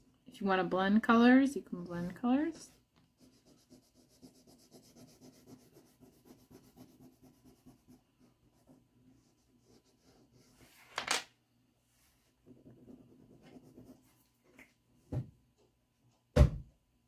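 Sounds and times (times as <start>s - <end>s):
crayon scribbling on paper: 3.2s - 10.6s.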